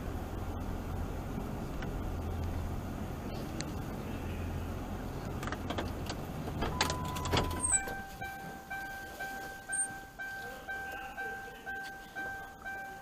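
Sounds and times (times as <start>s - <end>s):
car engine hum inside cabin: 0.0s - 13.0s
car beep: 6.6s - 13.0s.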